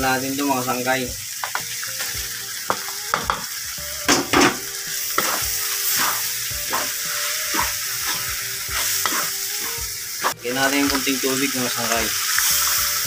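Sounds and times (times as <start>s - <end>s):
meat sizzling in a wok: 0.0s - 13.0s
wooden spatula scraping a pan: 5.2s - 10.4s.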